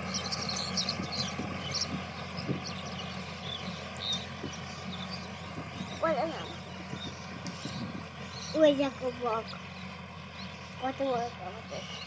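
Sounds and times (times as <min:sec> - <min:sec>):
birds chirping: 0:00.0 - 0:12.0
tractor diesel engine running: 0:00.0 - 0:12.0.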